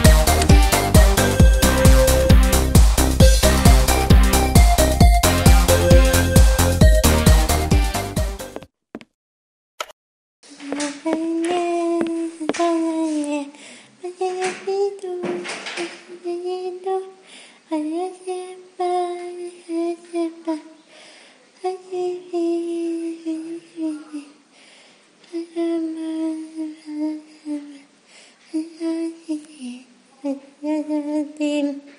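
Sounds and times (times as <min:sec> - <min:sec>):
woman singing wordless melody: 0:10.6 - 0:20.8, 0:21.6 - 0:24.4, 0:25.3 - 0:27.8, 0:28.5 - 0:31.8.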